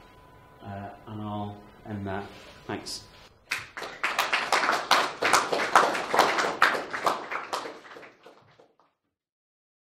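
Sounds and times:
audience applauding: 3.5 - 8.9.

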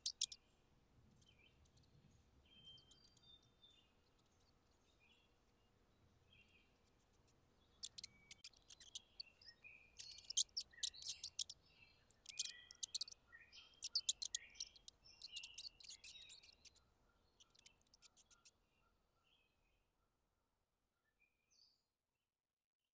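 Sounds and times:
mouse squeaking: 0.0 - 0.4, 1.1 - 5.0, 6.4 - 16.8, 17.4 - 18.5
sharp clicks: 6.8 - 13.2, 13.8 - 16.8.

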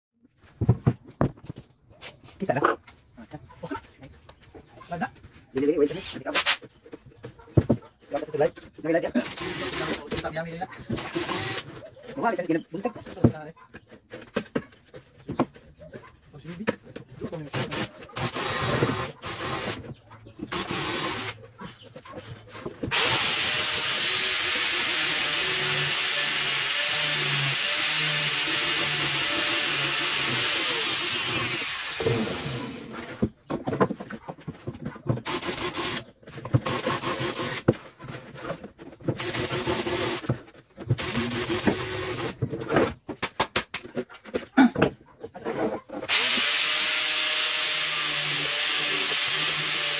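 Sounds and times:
power drill running: 9.2 - 10.2, 11.0 - 11.7, 17.5 - 19.8, 20.5 - 21.4, 22.9 - 33.0, 35.2 - 36.0, 36.6 - 37.6, 39.2 - 40.3, 41.0 - 42.4, 46.1 - 49.9
scraping and rubbing by hand: 45.2 - 46.1.

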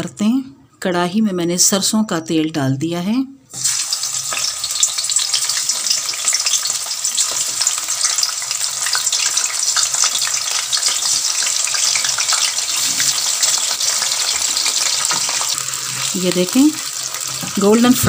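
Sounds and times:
fish frying in hot oil: 3.6 - 18.0.

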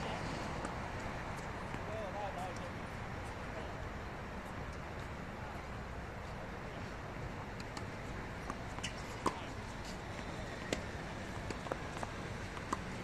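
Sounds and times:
steady background hum: 0.0 - 13.0
tennis balls struck by rackets: 7.4 - 13.0
balls bouncing on hard court: 7.6 - 13.0.

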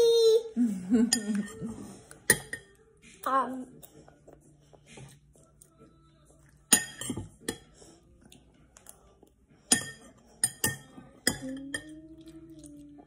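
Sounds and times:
metal spoon clinking against bowl: 6.7 - 7.7, 9.7 - 12.0.

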